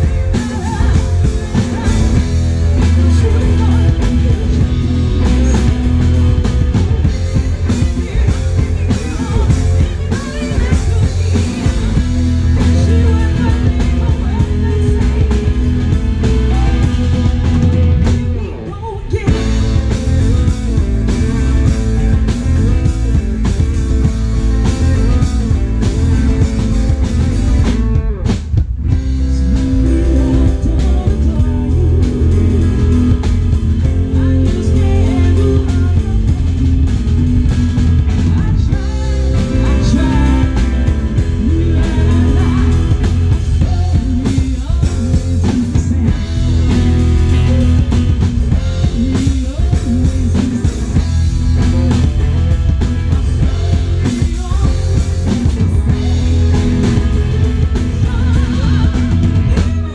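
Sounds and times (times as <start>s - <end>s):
lead vocal singing: 0.0s - 28.0s, 28.8s - 59.9s
bass guitar: 0.0s - 59.9s
drum kit: 0.0s - 59.9s
electric guitars: 0.0s - 59.9s.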